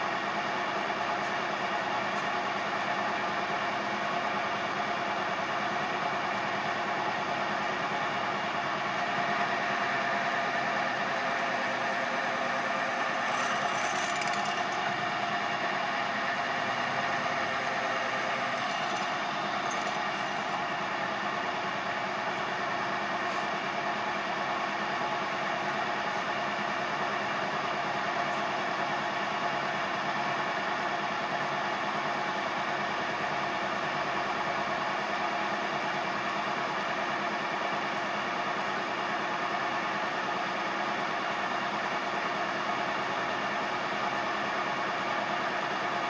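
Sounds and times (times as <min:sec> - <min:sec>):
milling machine humming: 0:09.0 - 0:23.7.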